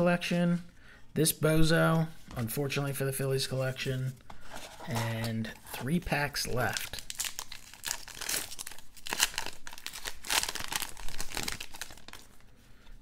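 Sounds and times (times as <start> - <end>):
card pack wrapper crinkling and tearing: 6.6 - 12.4.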